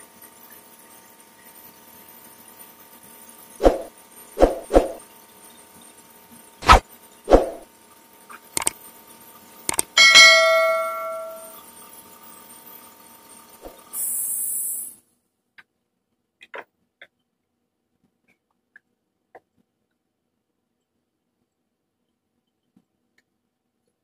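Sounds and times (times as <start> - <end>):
bell ding: 10.0 - 11.6
short high hiss: 14.0 - 15.0.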